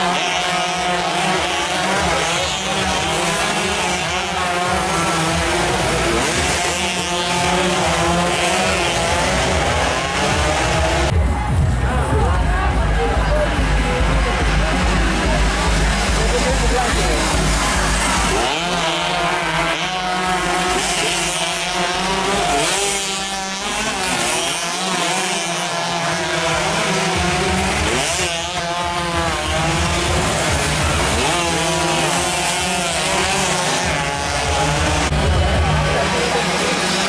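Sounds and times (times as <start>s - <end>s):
racing motorcycles at full throttle: 0.0s - 37.0s.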